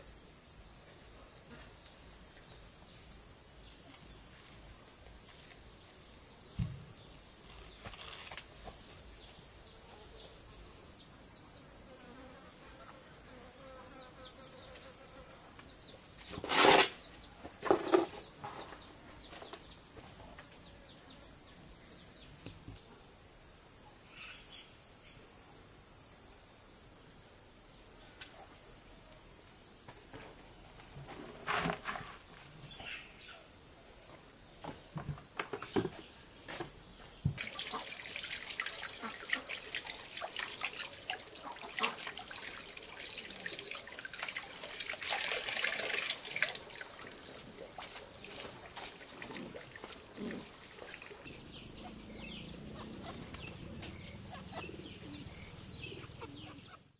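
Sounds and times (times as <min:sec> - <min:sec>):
high-pitched insect chorus: 0:31.6 - 0:56.9.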